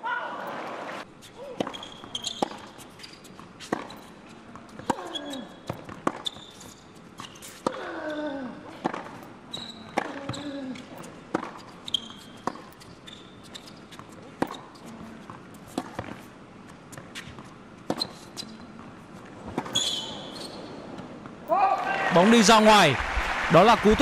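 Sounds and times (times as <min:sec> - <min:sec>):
sneakers squeaking on court: 0:00.4 - 0:07.9, 0:08.7 - 0:21.4
racket hitting tennis ball: 0:01.4 - 0:06.7, 0:08.8 - 0:10.4, 0:11.0 - 0:12.8, 0:14.0 - 0:16.3.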